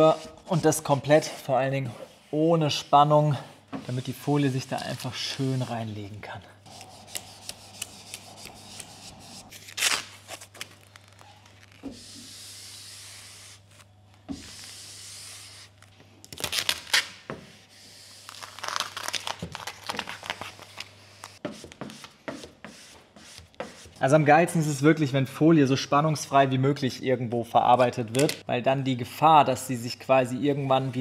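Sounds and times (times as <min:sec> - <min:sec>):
squeegee rubbing across film: 0:06.6 - 0:09.5
liner peeling off crackling: 0:06.7 - 0:11.9.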